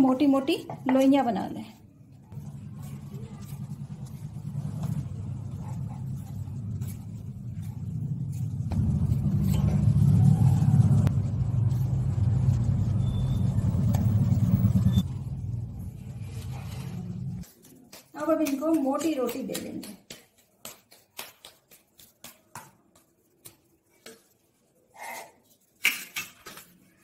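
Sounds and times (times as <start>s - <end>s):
low steady rumble: 2.2s - 17.5s.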